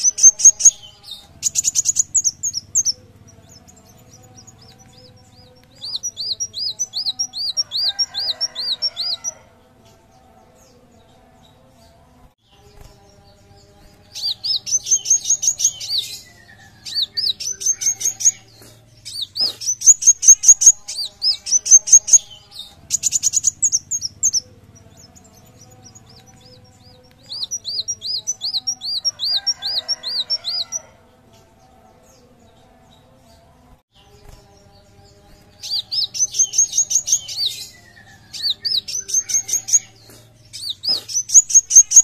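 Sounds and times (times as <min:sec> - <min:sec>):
bird repeated looping notes: 0:00.0 - 0:09.4, 0:14.0 - 0:30.8, 0:35.6 - 0:42.0
bird chirping: 0:00.0 - 0:42.0.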